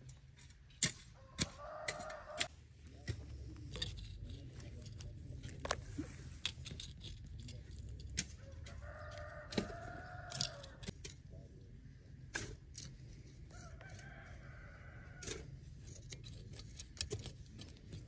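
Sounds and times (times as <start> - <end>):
rooster crowing: 1.2 - 2.5, 8.4 - 10.9, 13.5 - 15.5.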